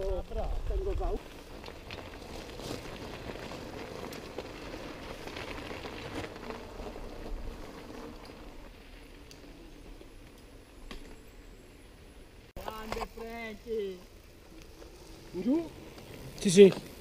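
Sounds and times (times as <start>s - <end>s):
bike tyres crackling on gravel: 0.0s - 17.0s
bike clicks and rattles: 1.2s - 11.2s.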